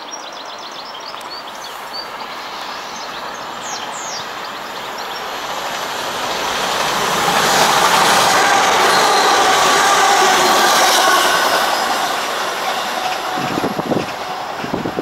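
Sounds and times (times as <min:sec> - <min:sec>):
bird chirps: 0:00.0 - 0:05.4
train running noise: 0:00.0 - 0:15.0.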